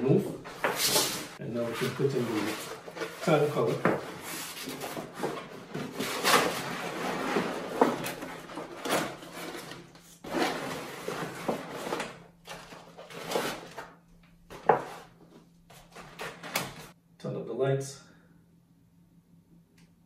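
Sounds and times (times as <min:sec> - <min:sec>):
stiff sheet rustling and scraping: 0:00.4 - 0:12.1.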